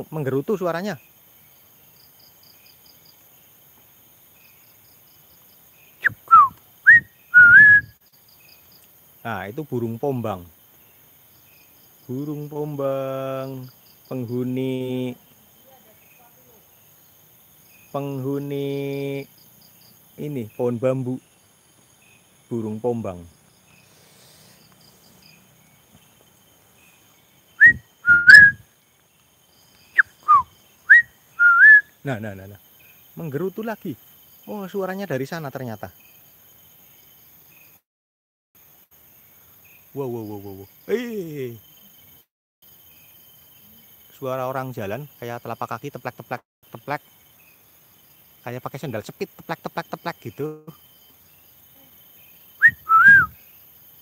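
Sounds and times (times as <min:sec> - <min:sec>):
faint insect chirping: 0:00.0 - 0:37.9, 0:38.6 - 0:54.0
person whistling bird call: 0:06.0 - 0:08.0, 0:27.6 - 0:28.6, 0:30.0 - 0:31.9, 0:52.6 - 0:53.4.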